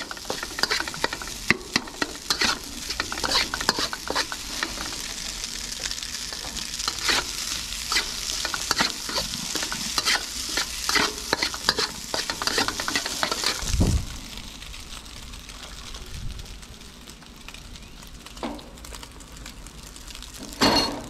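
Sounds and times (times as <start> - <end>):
spatula scraping a pan: 0.0 - 13.7
rice sizzling in a wok: 0.0 - 21.0.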